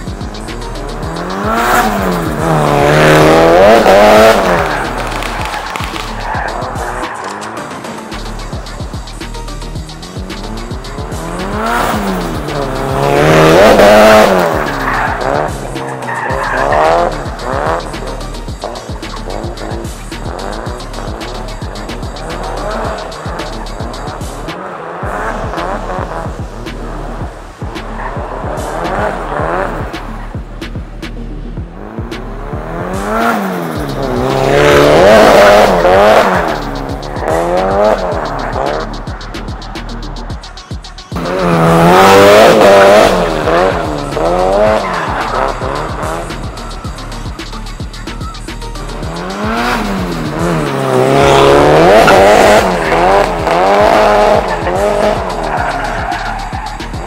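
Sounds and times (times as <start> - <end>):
car engine revving: 0.0 - 57.0
tyre squeal: 10.3 - 24.5, 33.1 - 57.0.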